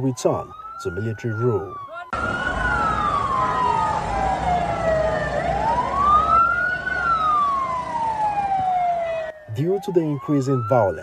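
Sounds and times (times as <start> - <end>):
siren wailing: 0.0 - 11.0.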